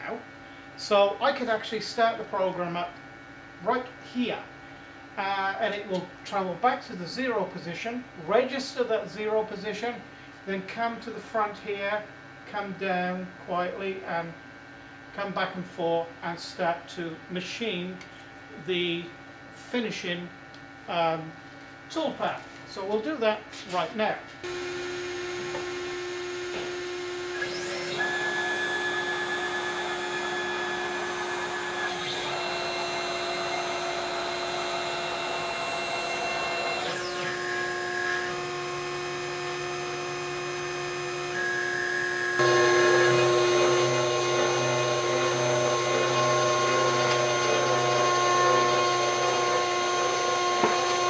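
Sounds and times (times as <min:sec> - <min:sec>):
router bit cutting wood: 0:24.4 - 0:51.0
router spindle running: 0:24.4 - 0:51.0
stepper motors whining: 0:24.4 - 0:51.0.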